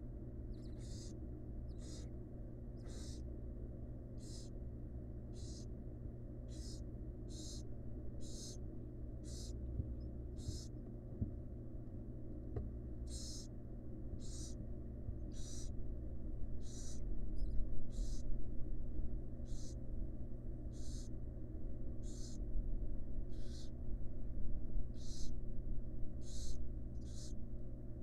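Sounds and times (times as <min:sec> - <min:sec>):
steady low hum: 0:00.0 - 0:28.0
owl nestlings rasping hisses: 0:00.6 - 0:02.1, 0:02.8 - 0:03.2, 0:04.2 - 0:04.5, 0:05.4 - 0:05.7, 0:06.5 - 0:07.6, 0:08.2 - 0:08.6, 0:09.2 - 0:09.6, 0:10.4 - 0:10.7, 0:13.1 - 0:13.5, 0:14.2 - 0:14.6, 0:15.3 - 0:15.7, 0:16.6 - 0:17.0, 0:17.9 - 0:18.2, 0:19.5 - 0:19.8, 0:20.7 - 0:21.1, 0:22.0 - 0:22.4, 0:23.3 - 0:23.7, 0:25.0 - 0:25.3, 0:26.2 - 0:27.4.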